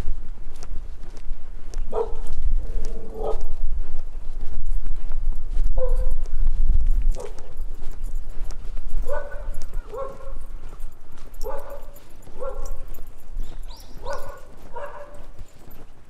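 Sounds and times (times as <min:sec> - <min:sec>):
footsteps on gravel: 0:00.0 - 0:16.0
dog barking: 0:01.9 - 0:02.3, 0:02.9 - 0:03.5, 0:05.8 - 0:06.2, 0:07.1 - 0:07.6, 0:09.0 - 0:10.6, 0:11.4 - 0:15.4.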